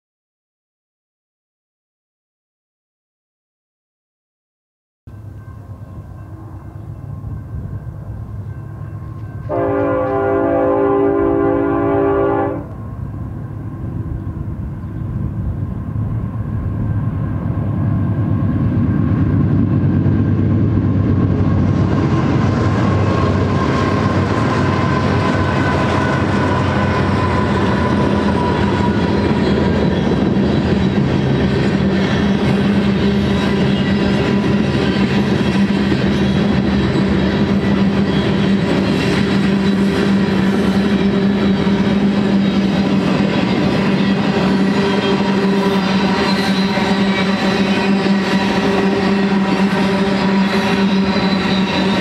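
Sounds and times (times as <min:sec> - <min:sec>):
train air horn: 0:09.4 - 0:12.8.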